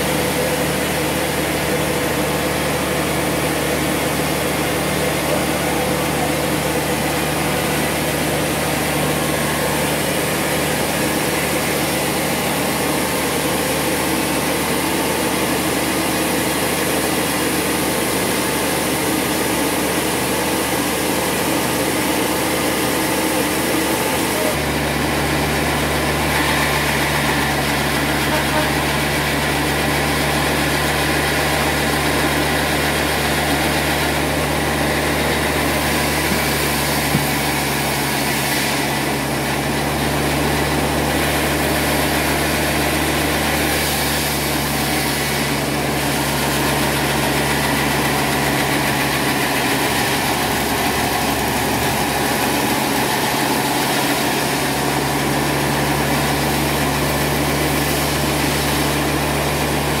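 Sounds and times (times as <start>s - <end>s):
sawmill machine drone: 0.0s - 60.0s.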